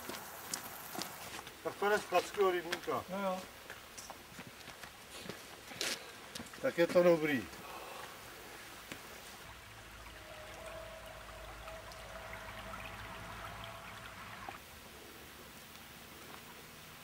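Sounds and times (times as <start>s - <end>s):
stream trickling over stones: 8.2s - 14.9s.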